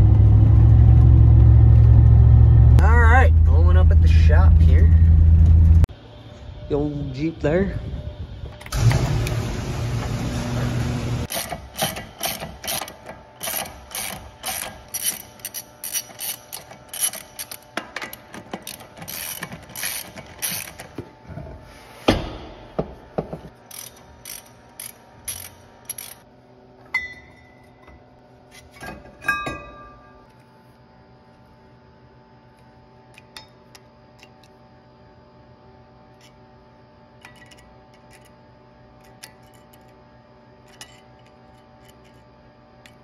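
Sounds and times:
steady mechanical noise: 0:00.0 - 0:29.0
hand ratchet clicking: 0:11.3 - 0:20.9, 0:23.7 - 0:26.2.

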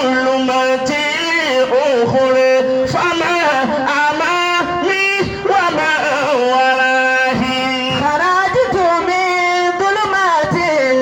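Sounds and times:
man chanting: 0:00.0 - 0:11.0.

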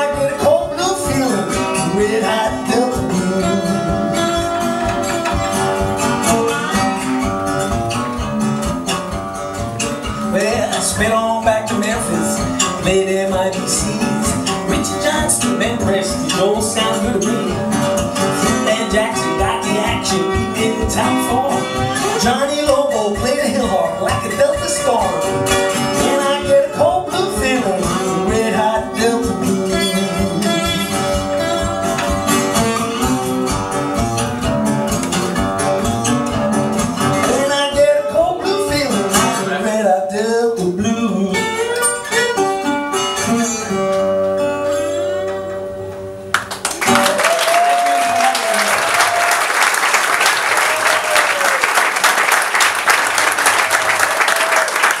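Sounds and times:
blues on resonator guitar: 0:00.0 - 0:47.1
audience applause: 0:46.3 - 0:55.0.

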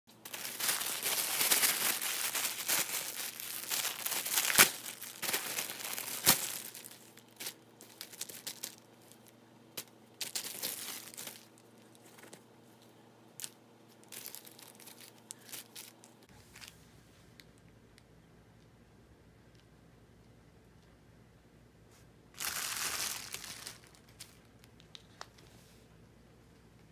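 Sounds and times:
plastic bag crinkling: 0:00.1 - 0:12.3, 0:13.4 - 0:16.7, 0:22.4 - 0:25.4.

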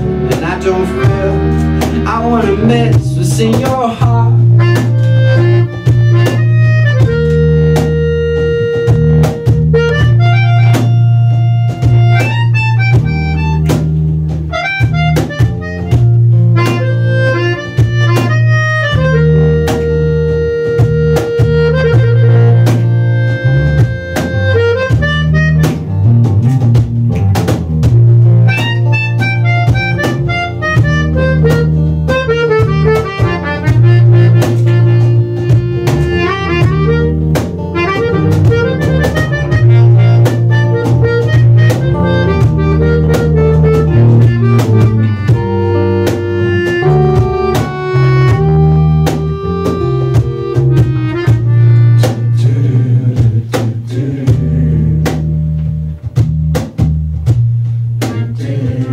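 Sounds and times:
strummed acoustic guitar: 0:00.0 - 0:04.2
cajon beat: 0:00.0 - 0:58.9
electric bass guitar: 0:00.0 - 0:58.9.

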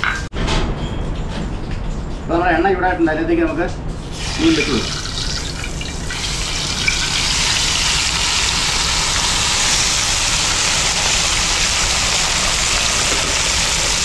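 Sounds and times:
fish sizzling in hot oil: 0:04.1 - 0:14.0.

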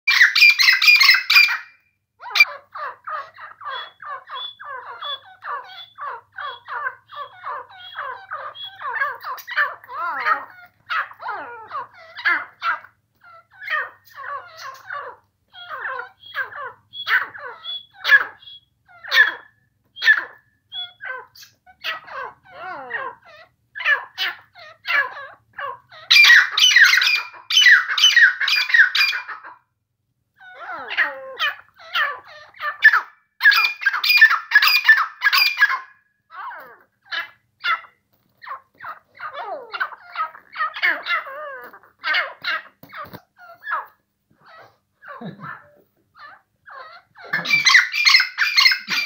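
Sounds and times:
francolin calling: 0:00.1 - 0:29.5, 0:46.2 - 0:49.0.

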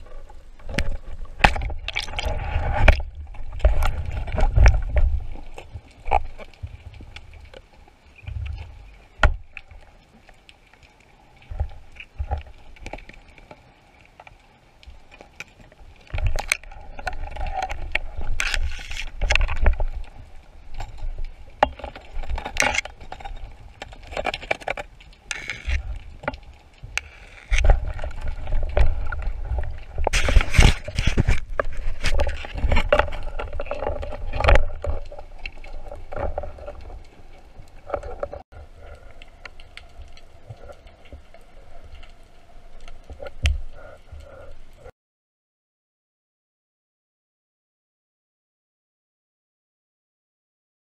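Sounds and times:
rushing bubbling water: 0:00.0 - 0:14.1, 0:25.2 - 0:44.9
clicks and knocks underwater: 0:00.0 - 0:44.9
low water rumble: 0:00.0 - 0:44.9.

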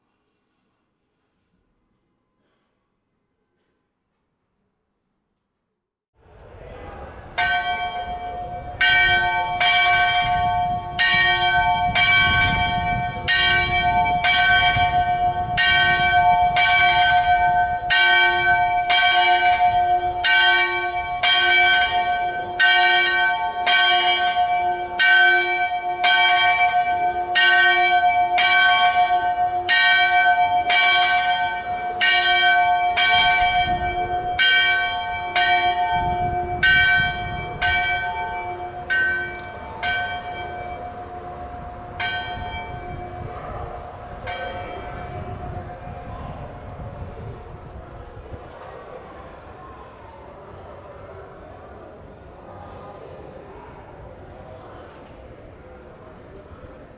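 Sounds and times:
church bell ringing: 0:06.8 - 0:47.7.

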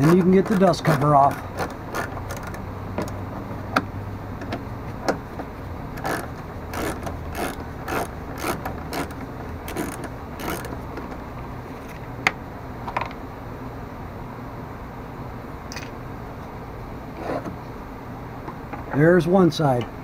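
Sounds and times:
socket ratchet clicking: 0:00.0 - 0:03.2, 0:06.0 - 0:11.0.

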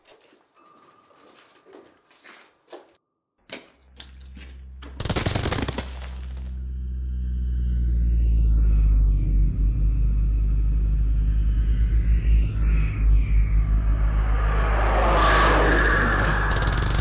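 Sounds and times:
hovering flying machine hum: 0:04.0 - 0:17.0.

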